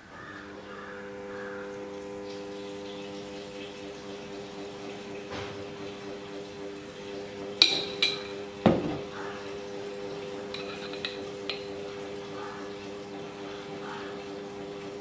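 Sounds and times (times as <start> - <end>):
steady low hum: 0.0 - 15.0
metal spoon clinking on bowls: 7.6 - 8.4, 10.5 - 11.8.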